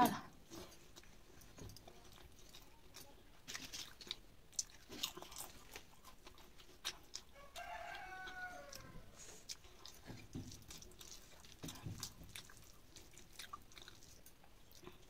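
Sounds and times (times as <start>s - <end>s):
person chewing food: 0.4s - 15.0s.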